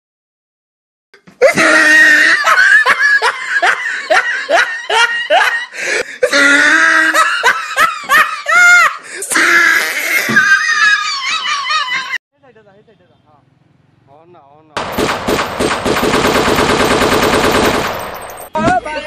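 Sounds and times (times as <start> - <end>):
loud laughter: 1.4 - 12.2.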